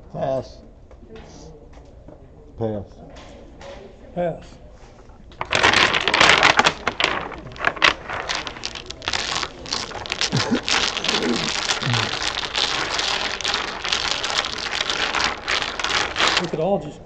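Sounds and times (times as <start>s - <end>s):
dominoes clattering on wooden table: 5.4s - 16.6s.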